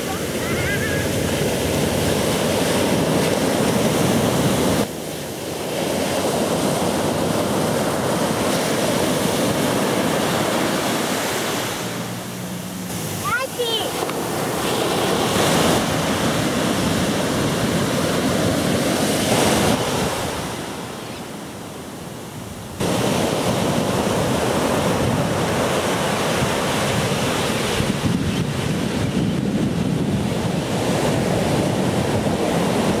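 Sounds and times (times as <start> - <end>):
ocean surf breaking: 0.0 - 33.0
wind buffeting microphone: 22.4 - 33.0.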